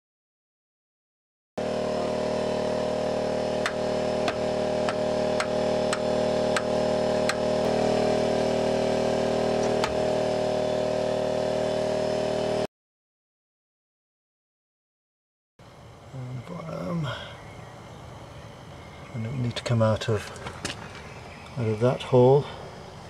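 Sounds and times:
droning hum: 1.6s - 12.7s, 15.6s - 23.0s.

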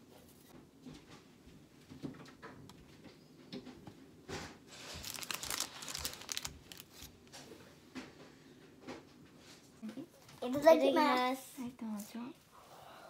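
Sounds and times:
baking paper crinkling: 4.7s - 7.5s.

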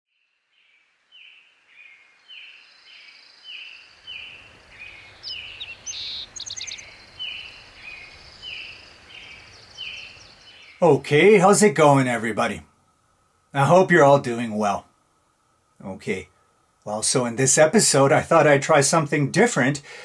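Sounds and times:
bird trill: 0.6s - 11.0s
birds calling: 0.6s - 11.6s.

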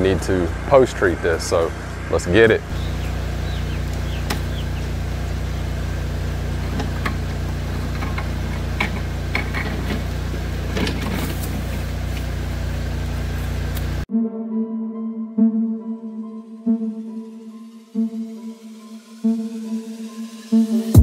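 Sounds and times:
pressure washer engine running: 0.0s - 14.0s.

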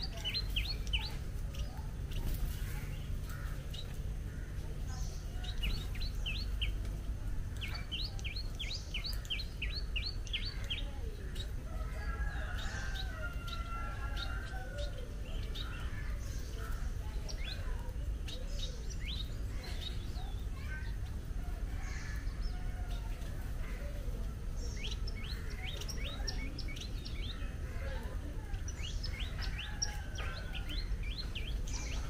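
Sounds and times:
steady low rumble: 0.0s - 11.8s
small birds chirping: 0.0s - 32.0s.

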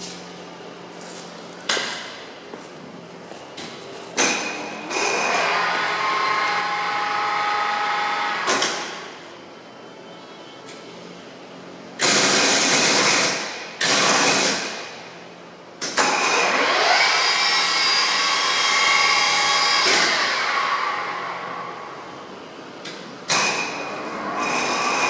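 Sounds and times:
radial drill machine noise: 4.8s - 8.7s, 12.0s - 14.8s, 16.0s - 21.5s, 23.3s - 25.0s.

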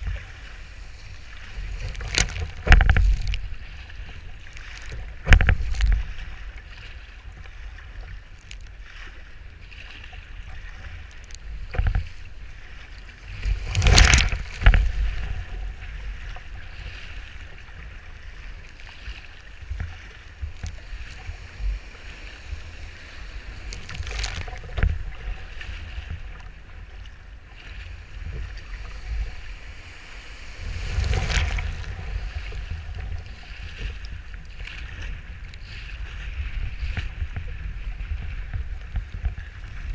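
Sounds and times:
wind buffeting microphone: 0.0s - 8.0s, 13.2s - 18.4s, 19.6s - 39.9s
waves splashing over kayak: 0.0s - 39.9s.

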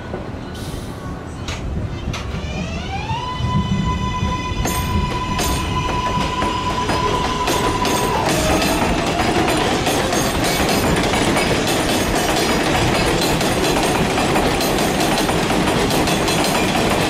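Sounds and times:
train wheels clicking over rail joints: 4.6s - 17.0s.

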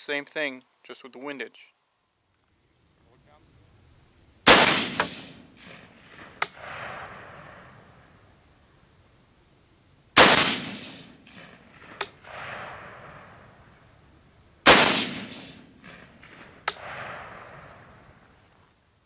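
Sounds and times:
rifle shots with echo: 4.4s - 8.2s, 10.2s - 13.8s, 14.6s - 18.3s.

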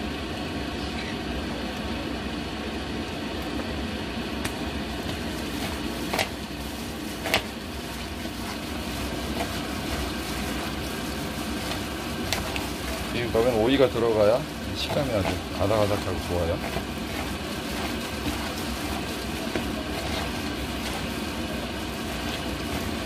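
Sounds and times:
steady background hum: 0.0s - 23.0s
vegetables tossed in plastic bowl: 5.0s - 23.0s.

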